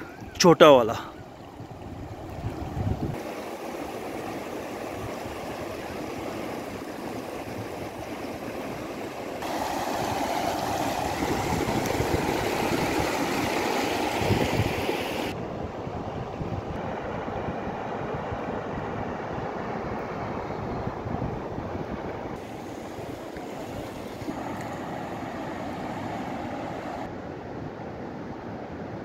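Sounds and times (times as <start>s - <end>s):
stream rushing over stones: 0.4s - 15.4s, 22.4s - 27.1s.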